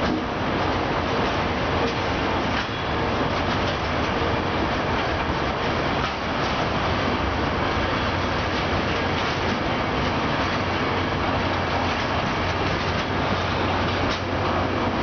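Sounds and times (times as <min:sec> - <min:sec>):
train wheels rumbling on rails: 0:00.0 - 0:15.0
faint rail clacks: 0:08.0 - 0:14.6.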